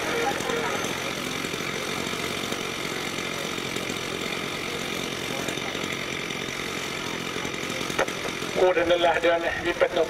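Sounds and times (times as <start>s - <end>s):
small motor droning: 0.0s - 10.0s.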